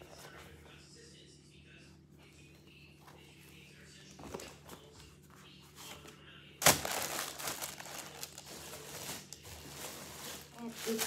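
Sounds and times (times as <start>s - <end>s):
plastic packaging crinkling: 6.6s - 11.0s.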